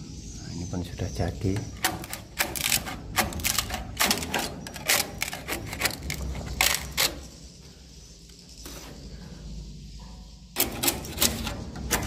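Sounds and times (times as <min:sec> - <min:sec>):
tool scraping wood: 0:01.6 - 0:07.4.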